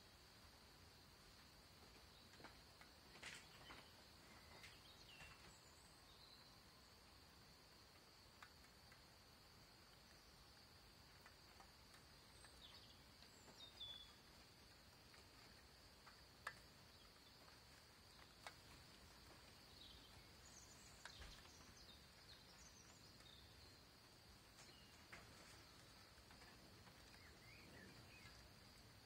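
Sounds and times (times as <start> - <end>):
faint clicks: 11.0 - 21.9.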